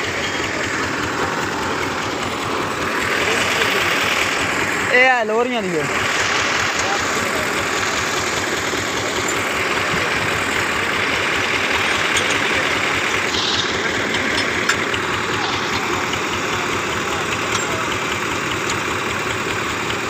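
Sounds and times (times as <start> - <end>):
tractor diesel engine idling: 0.0 - 20.0.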